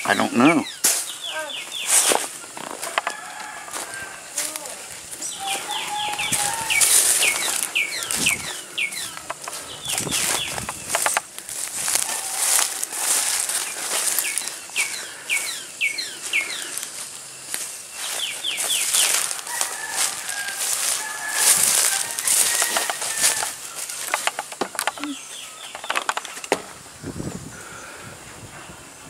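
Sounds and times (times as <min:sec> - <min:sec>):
bird chirping: 0:00.0 - 0:02.9, 0:05.2 - 0:29.0
footsteps crunching through dry leaves: 0:00.0 - 0:27.0.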